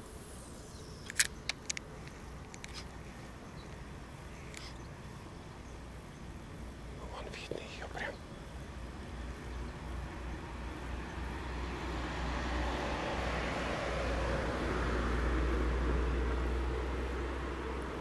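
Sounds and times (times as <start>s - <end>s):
vehicle passing by: 8.6s - 18.0s.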